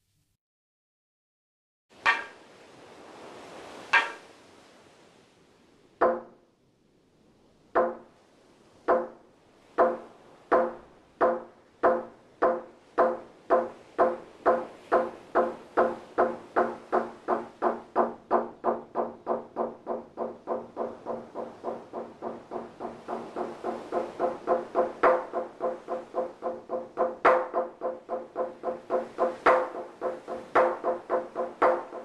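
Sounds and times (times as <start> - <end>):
wooden board struck with mallet: 2.0 - 2.4, 3.9 - 4.2, 6.0 - 6.4, 7.8 - 8.1, 8.9 - 9.2, 9.8 - 32.0.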